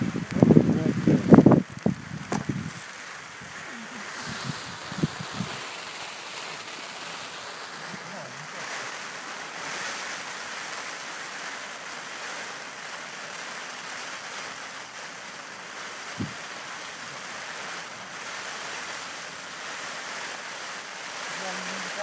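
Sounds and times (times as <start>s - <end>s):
wind rushing: 0.0s - 11.4s, 16.1s - 17.0s
choppy lake water: 0.0s - 22.0s
short low thump: 2.2s - 2.6s.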